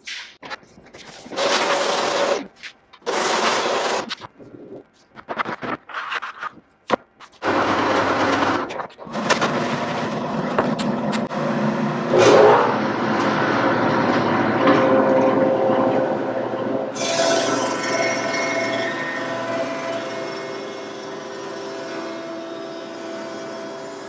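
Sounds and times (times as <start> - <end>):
thickness planer cutting wood: 1.3 - 4.1.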